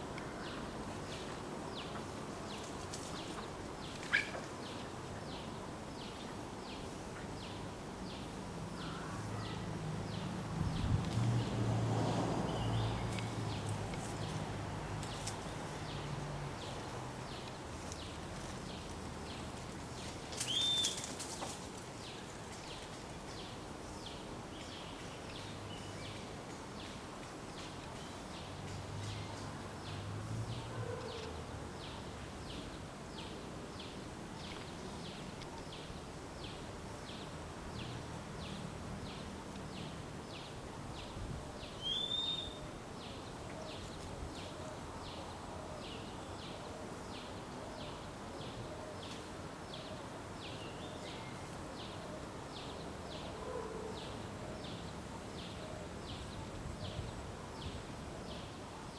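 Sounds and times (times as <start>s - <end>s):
bird call: 20.4s - 21.0s, 41.8s - 42.6s.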